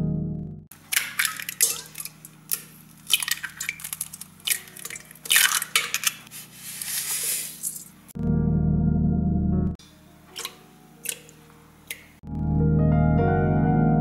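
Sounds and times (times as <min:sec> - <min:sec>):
eggs cracking on metal bowl: 0:00.7 - 0:06.3, 0:10.4 - 0:12.2.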